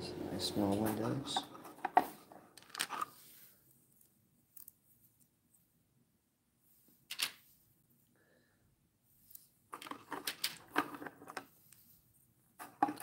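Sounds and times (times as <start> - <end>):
plastic parts clicking and clattering: 1.3 - 3.1, 7.0 - 7.4, 9.7 - 11.6, 12.6 - 13.0.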